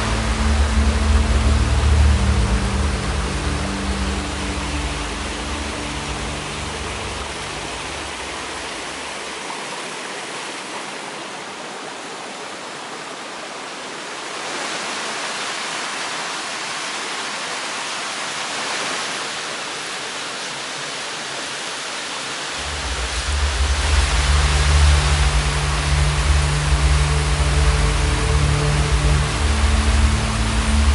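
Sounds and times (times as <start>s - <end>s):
low rumble: 0.0s - 8.8s, 22.6s - 30.9s
waterfall rushing: 0.0s - 30.9s.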